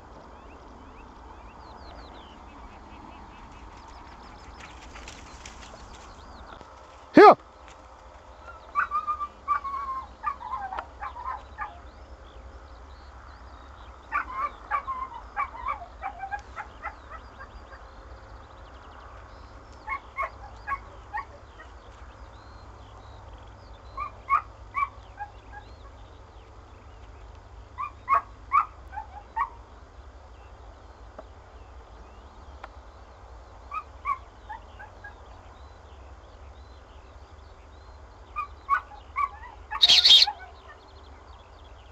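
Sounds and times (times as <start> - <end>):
dog yelping: 38.7 - 40.5.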